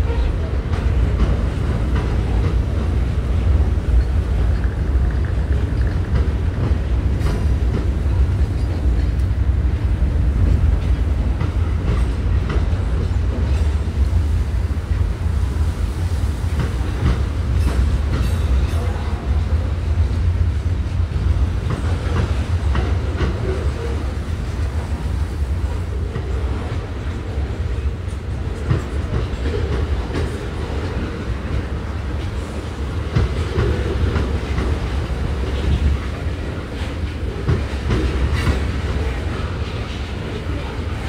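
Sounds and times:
freight train rumbling: 0.0 - 41.0.

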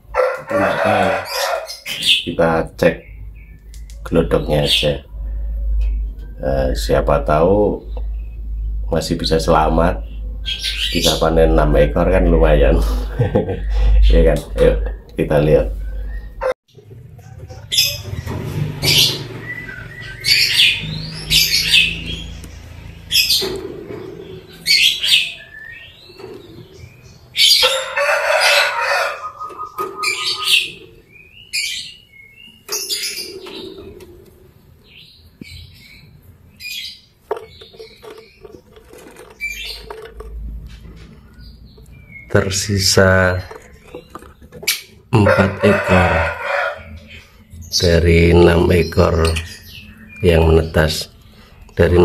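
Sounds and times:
lovebirds shrill calls: 0.6 - 2.3, 10.0 - 11.6, 17.5 - 34.2, 34.8 - 51.9.

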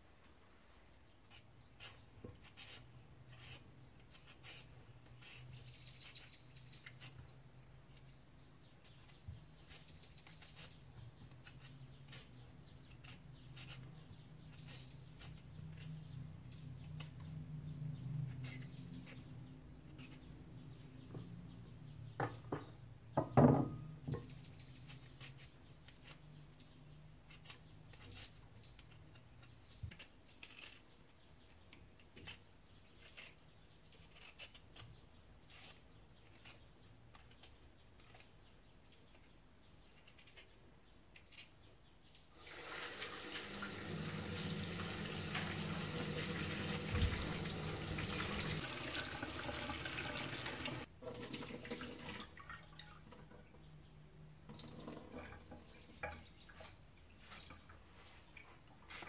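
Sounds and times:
peeler scraping potatoes: 1.2 - 17.3, 18.2 - 20.8, 24.3 - 50.9
knock: 22.2 - 23.8.

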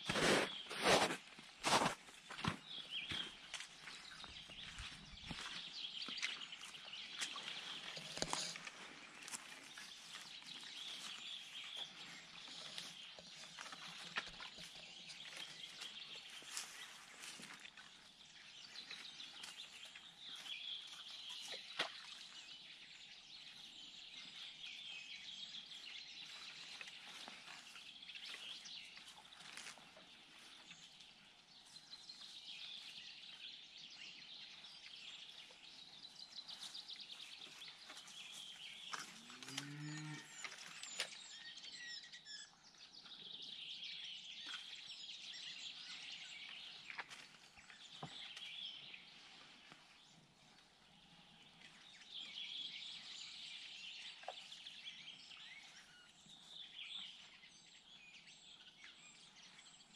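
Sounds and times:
songbirds twittering and chirping: 0.0 - 59.9
cow mooing: 39.4 - 40.4.

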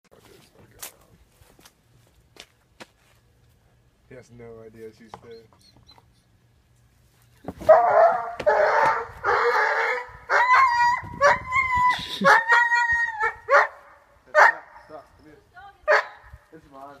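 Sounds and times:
dog barking harshly: 7.7 - 10.6, 14.4 - 14.8, 15.9 - 16.2
high yelping cries: 7.7 - 15.0.

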